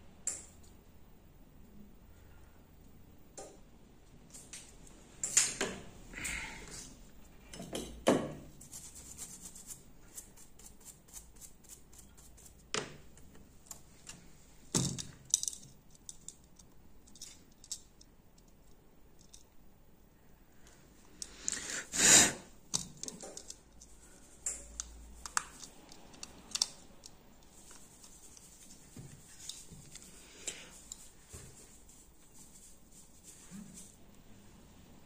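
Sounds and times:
brush ticking over circuit board: 0:08.6 - 0:12.7, 0:27.1 - 0:34.0.

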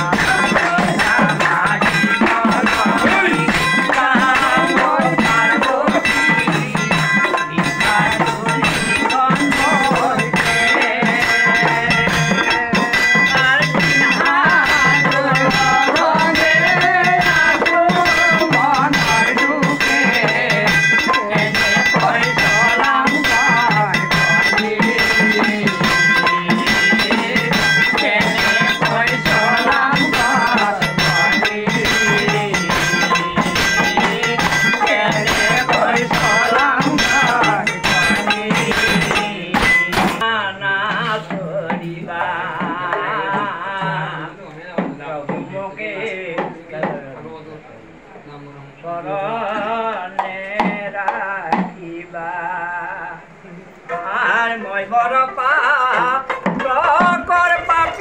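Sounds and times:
rattling hand percussion: 0:00.0 - 0:44.1, 0:55.8 - 0:58.0
men singing together: 0:00.0 - 0:47.6, 0:48.8 - 0:58.0.

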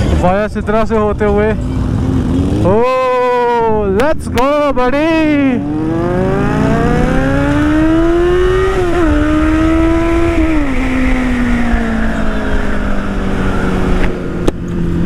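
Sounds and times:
motorcycle engine accelerating: 0:00.0 - 0:15.0
wind rushing over microphone: 0:05.6 - 0:15.0.

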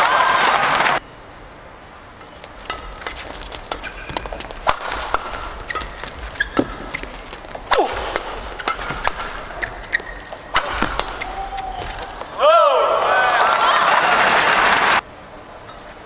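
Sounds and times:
rackets striking shuttlecock: 0:02.2 - 0:12.4
shoe squeaks on court floor: 0:02.7 - 0:12.3.

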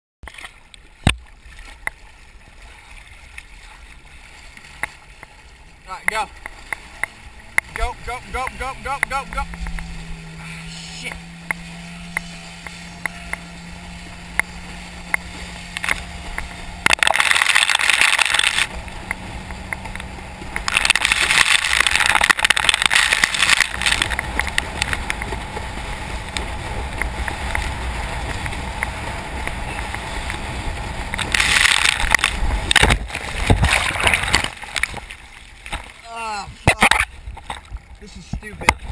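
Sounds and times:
camera plunging into water: 0:00.2 - 0:05.3, 0:15.1 - 0:25.4, 0:31.1 - 0:36.0
churning water spray: 0:00.3 - 0:38.9
jet ski engine hum: 0:00.3 - 0:38.9
rushing wind on camera: 0:05.8 - 0:38.9.

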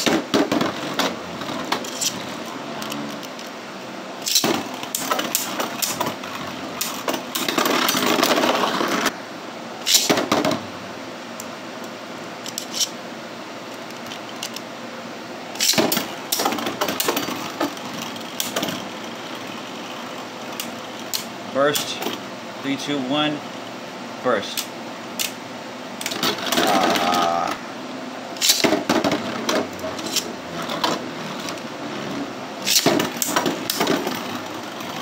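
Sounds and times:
spinning tops whirring: 0:00.0 - 0:09.2, 0:09.8 - 0:10.8, 0:15.5 - 0:22.3, 0:28.3 - 0:35.0
plastic clacks of tops colliding: 0:04.2 - 0:06.2, 0:09.9 - 0:10.6, 0:15.6 - 0:18.9, 0:28.4 - 0:31.5, 0:32.6 - 0:34.4.

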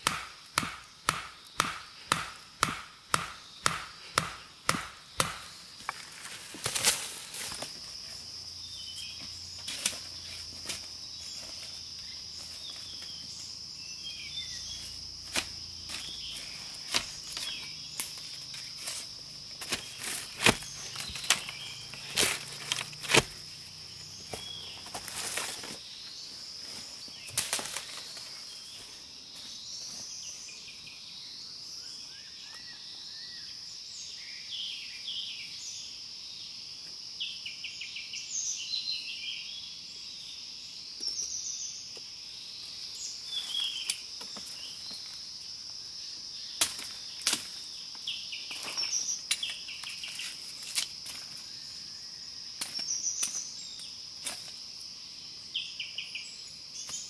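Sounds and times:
stake pounded into ground: 0:00.0 - 0:07.8, 0:15.3 - 0:23.4, 0:46.6 - 0:47.6
high insect drone: 0:00.0 - 0:57.0.

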